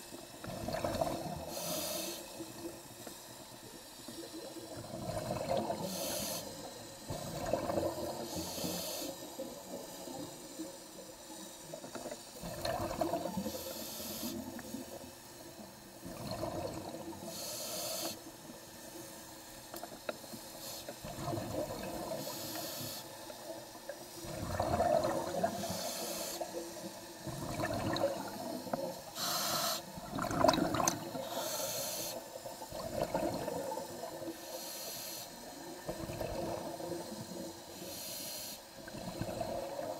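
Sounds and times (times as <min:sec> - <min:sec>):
exhaust bubbles underwater: 0:00.0 - 0:01.5, 0:04.2 - 0:08.4, 0:12.0 - 0:13.6, 0:16.0 - 0:17.3, 0:21.0 - 0:22.3, 0:24.2 - 0:25.7, 0:26.4 - 0:29.1, 0:29.8 - 0:31.3, 0:32.4 - 0:34.4, 0:35.6 - 0:37.7, 0:38.8 - 0:39.9
regulator hiss on inhale: 0:01.2 - 0:12.4, 0:13.2 - 0:16.1, 0:16.9 - 0:24.4, 0:25.2 - 0:27.5, 0:28.2 - 0:30.1, 0:31.0 - 0:32.9, 0:33.5 - 0:39.9.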